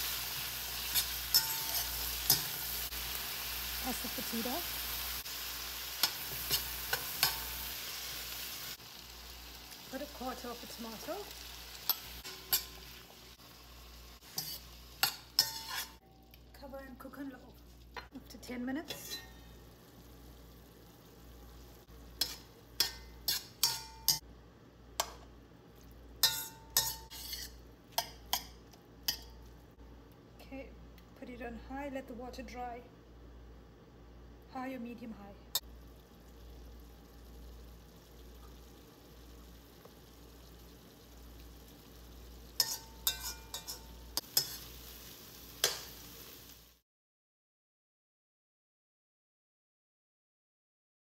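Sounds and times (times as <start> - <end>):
metal spoon stirring in pan: 0.0 - 3.0, 5.8 - 8.3, 11.7 - 13.2, 14.2 - 16.0, 18.8 - 19.5, 22.1 - 24.2, 26.2 - 29.4, 42.6 - 46.0
faint sizzle in pan: 0.0 - 24.4, 25.0 - 32.6, 34.5 - 46.8
spoon clinking against pan: 0.9 - 2.5, 22.2 - 24.2, 42.6 - 44.6
utensil clanking against pan: 6.0 - 7.5, 42.6 - 44.7.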